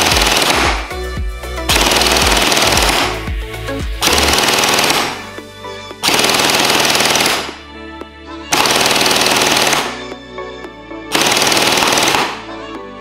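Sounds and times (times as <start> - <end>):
electric gel blaster firing full-auto: 0.0 - 1.0, 1.7 - 3.4, 4.0 - 5.3, 6.0 - 7.6, 8.6 - 10.0, 11.2 - 12.5.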